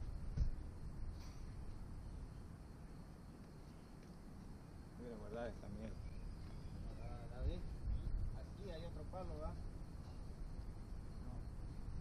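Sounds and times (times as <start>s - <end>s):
soft low thump: 0.0s - 0.6s
faint background noise: 0.0s - 12.0s.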